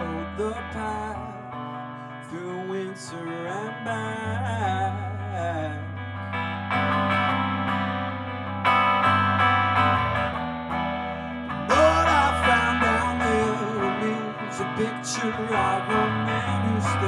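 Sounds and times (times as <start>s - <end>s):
person singing: 0.0s - 6.0s, 11.6s - 17.0s
electric guitar strumming chords: 0.0s - 17.0s.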